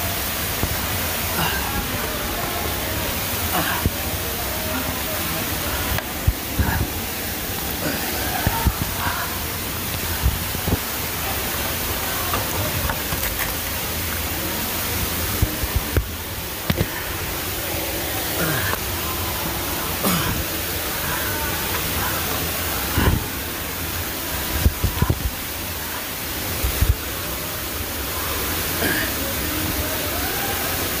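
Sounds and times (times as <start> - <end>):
running water: 0.0 - 31.0.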